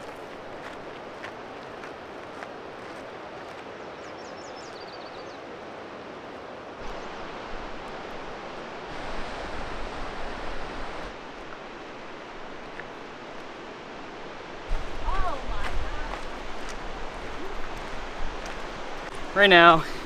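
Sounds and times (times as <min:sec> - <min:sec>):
bird chirping: 0:04.0 - 0:05.4
river rapids roaring: 0:05.4 - 0:20.0.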